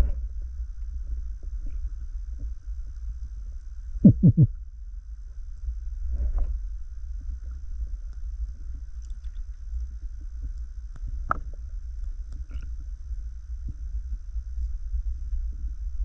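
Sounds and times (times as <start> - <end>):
underwater rumble of moving water: 0.0 - 16.0
faint clicks and crackles: 7.2 - 12.8.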